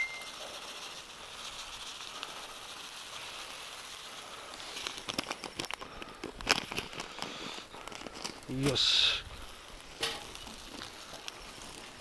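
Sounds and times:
food sizzling on a griddle: 0.0 - 5.0, 8.4 - 12.0.

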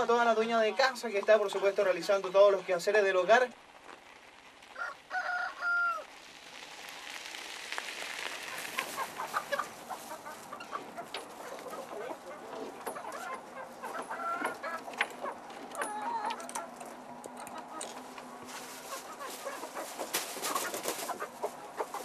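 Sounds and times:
rooster crowing: 4.7 - 6.1
rustling and scraping: 6.6 - 22.0
chickens clucking: 8.3 - 22.0.

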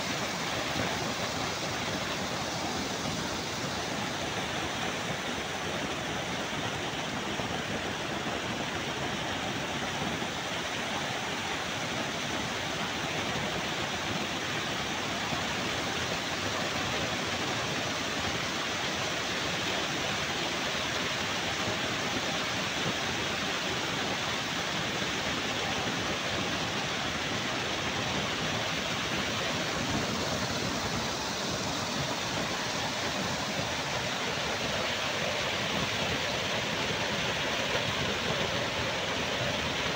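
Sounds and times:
waterfall rushing into pool: 0.0 - 39.9.

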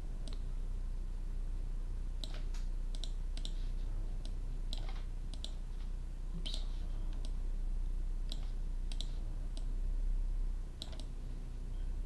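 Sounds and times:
low electrical hum: 0.0 - 12.0
mouse and keyboard clicks: 4.7 - 5.6, 6.4 - 7.4, 8.3 - 9.7, 10.8 - 11.1.

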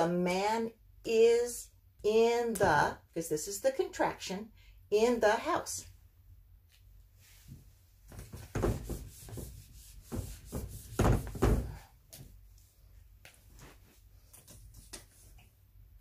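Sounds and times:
cloth wiping a whiteboard: 7.1 - 15.6
board knocking and thudding: 8.1 - 11.9.

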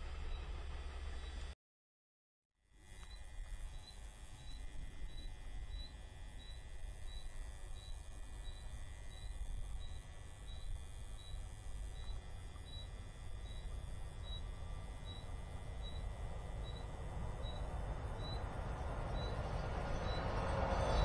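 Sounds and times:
approaching freight train: 0.0 - 1.5, 14.6 - 21.0
cricket chirping: 3.0 - 21.0
low background rumble: 3.2 - 21.0.

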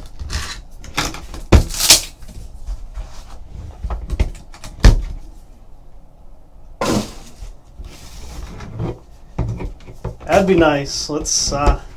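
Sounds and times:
box handling scrapes: 6.8 - 9.1.

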